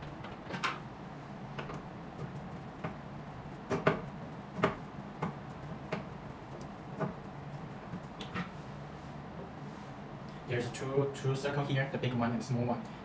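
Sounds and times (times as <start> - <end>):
steady low hum: 0.0 - 13.0
sharp clicks and taps on plastic: 3.7 - 7.2.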